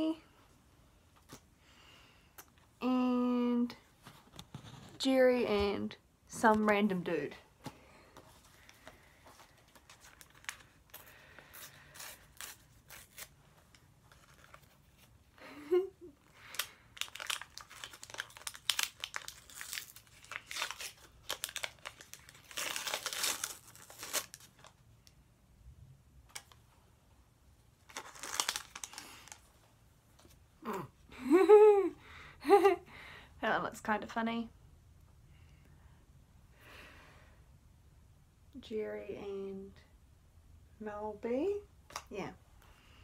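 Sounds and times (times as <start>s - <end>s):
wrapper crinkling and tearing: 9.5s - 15.1s, 16.4s - 24.8s, 27.8s - 29.5s.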